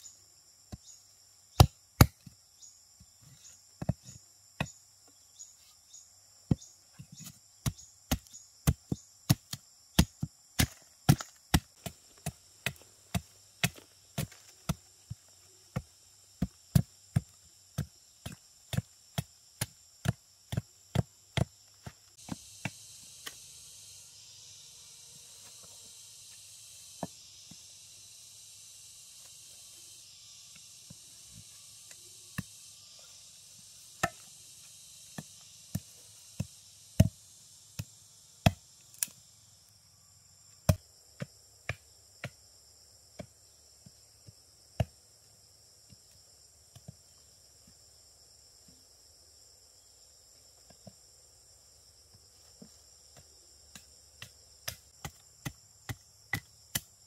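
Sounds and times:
insects buzzing: 0:00.0 - 0:57.0
sharp chopping strikes: 0:07.6 - 0:14.8, 0:34.0 - 0:34.3, 0:53.7 - 0:56.9.

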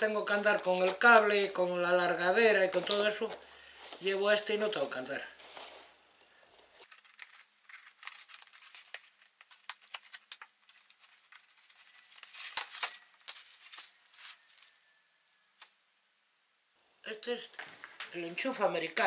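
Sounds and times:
plastic bags crinkling: 0:00.2 - 0:04.5, 0:06.8 - 0:15.0.

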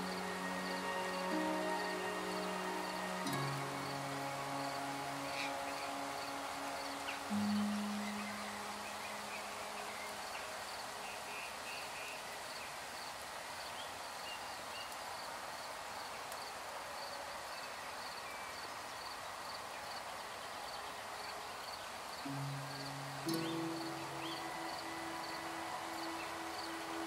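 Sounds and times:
birds chirping: 0:00.0 - 0:12.5, 0:21.8 - 0:27.0
insect chirping: 0:00.0 - 0:17.2, 0:20.7 - 0:27.0
steady hiss: 0:00.0 - 0:27.0.

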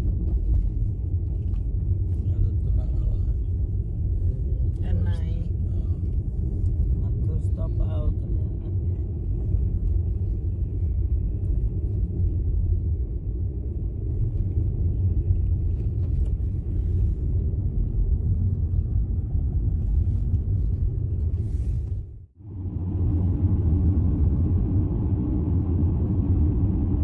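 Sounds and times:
car tyre and road noise: 0:00.0 - 0:27.0.

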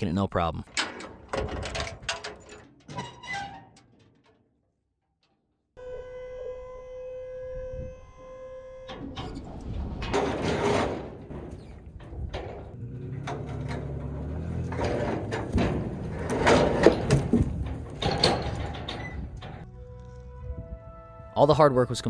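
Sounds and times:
hydraulic motor whine: 0:05.8 - 0:09.5
log scraping off trailer bed: 0:09.2 - 0:20.2.

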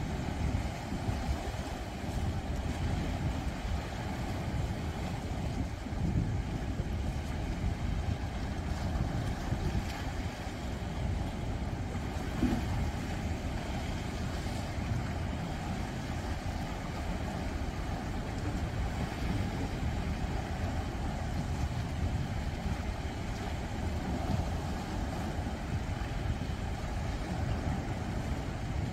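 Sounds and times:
waves washing against rocks: 0:00.0 - 0:28.9.

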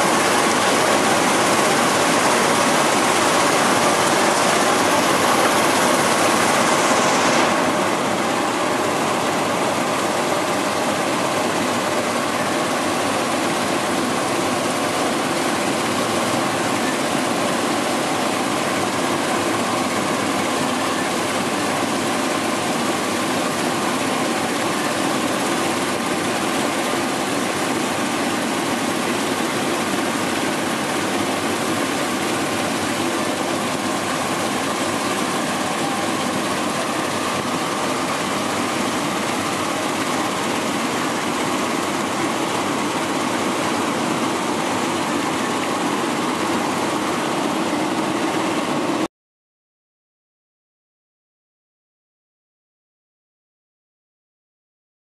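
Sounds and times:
rushing water: 0:00.0 - 0:48.1.

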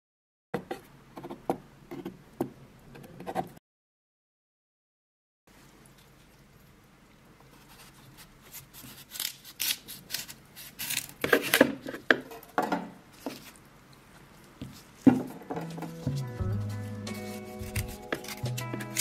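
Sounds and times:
knife slicing radish on board: 0:16.1 - 0:19.0.

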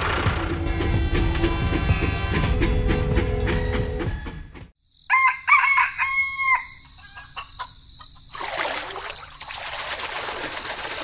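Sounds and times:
rooster crowing: 0:05.1 - 0:07.6.

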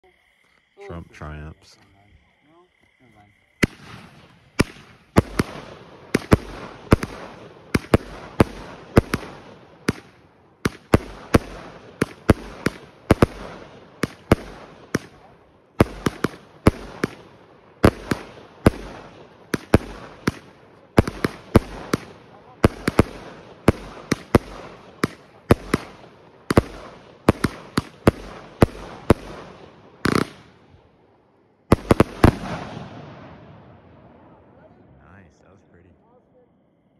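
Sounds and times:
firework bangs: 0:03.6 - 0:30.8, 0:31.6 - 0:34.4
firework crackle and hiss: 0:03.6 - 0:30.8, 0:31.7 - 0:33.5.

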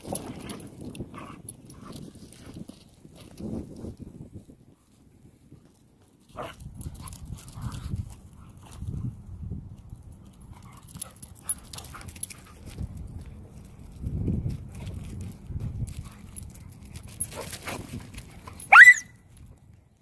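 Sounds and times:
rough low dog noises: 0:00.0 - 0:19.4
dog whining: 0:18.7 - 0:19.1.

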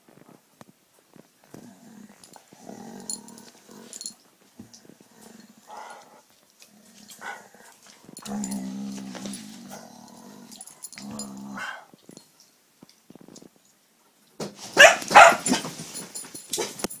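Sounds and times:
dog growling: 0:01.4 - 0:11.9
dogs scuffling: 0:05.8 - 0:11.0, 0:14.4 - 0:17.0
dog barking: 0:14.8 - 0:15.6
dog yipping: 0:14.8 - 0:15.6.

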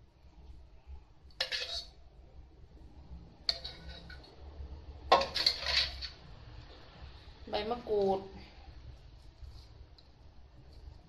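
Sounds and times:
metal spoon scraping a clay mortar: 0:01.3 - 0:02.0, 0:03.5 - 0:04.4, 0:05.1 - 0:06.2.

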